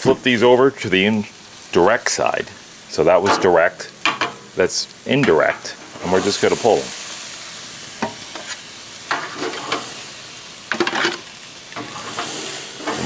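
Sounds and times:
steaks sizzling on grill: 0.0 - 13.0
metal scraping on grill grate: 8.0 - 10.0, 10.7 - 13.0.

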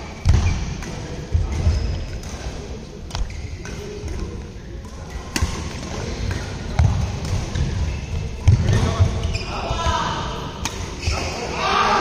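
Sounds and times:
racket striking shuttlecock: 3.1 - 7.6, 10.6 - 11.0.

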